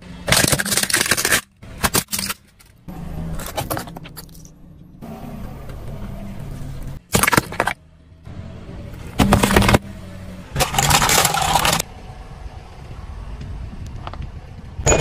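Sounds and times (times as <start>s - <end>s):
car engine rumble: 0.0s - 15.0s
tyre crushing plastic jars: 0.3s - 2.7s, 7.1s - 7.8s, 9.2s - 9.8s, 10.6s - 11.8s.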